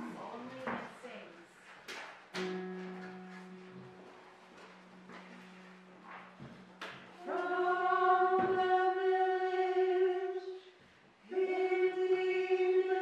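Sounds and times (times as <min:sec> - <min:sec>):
small chorus singing: 0:07.2 - 0:13.0.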